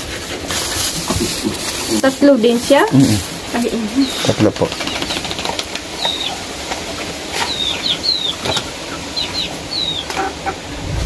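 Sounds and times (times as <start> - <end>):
small birds chirping: 3.6 - 10.5.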